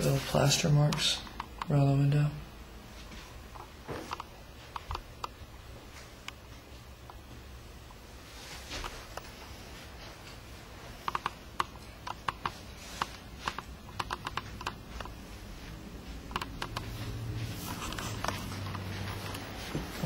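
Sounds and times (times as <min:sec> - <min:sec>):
irregular light clicks: 0:16.3 - 0:16.9.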